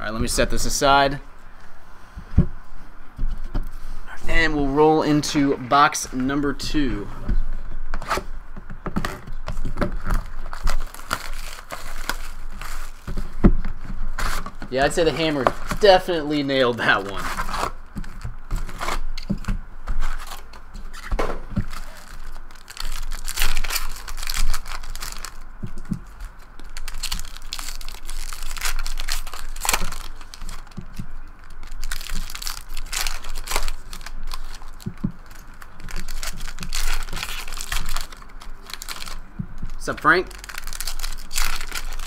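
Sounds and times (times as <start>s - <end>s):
foil wrappers tearing and crinkling: 9.0s - 13.3s, 14.1s - 42.0s.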